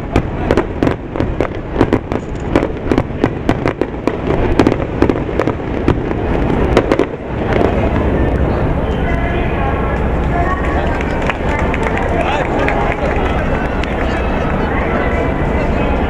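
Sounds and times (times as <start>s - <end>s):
fireworks bangs and pops: 0.0s - 8.6s
low rumble: 0.0s - 16.0s.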